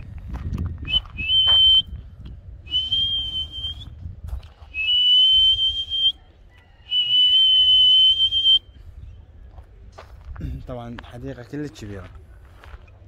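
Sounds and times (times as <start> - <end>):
high steady whistle: 0.8 - 2.0, 2.6 - 4.0, 4.7 - 6.2, 6.8 - 8.8.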